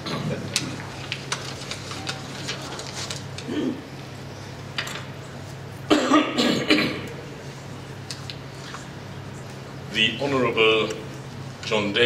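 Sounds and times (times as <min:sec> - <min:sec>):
man coughing: 0:05.9 - 0:07.1.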